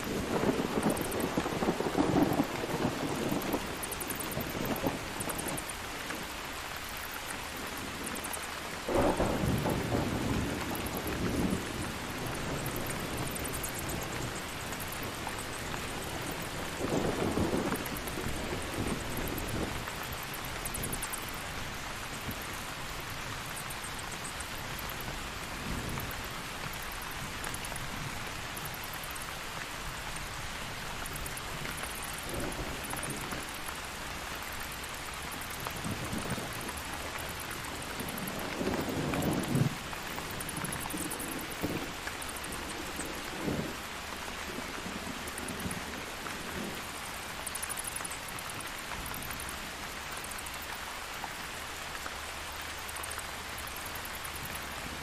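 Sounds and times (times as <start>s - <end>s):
thunder rumbling: 0.0s - 5.7s, 8.8s - 21.3s, 35.4s - 46.9s
steady rain: 0.0s - 55.0s.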